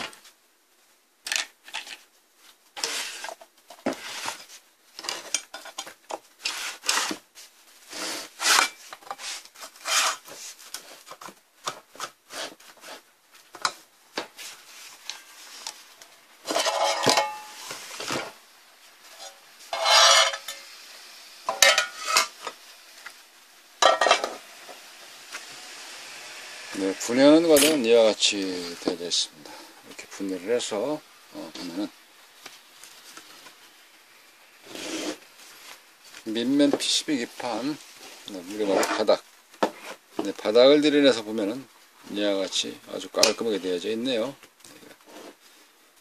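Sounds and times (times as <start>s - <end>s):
metal case scraping on wood: 7.9s - 10.4s, 19.2s - 20.5s.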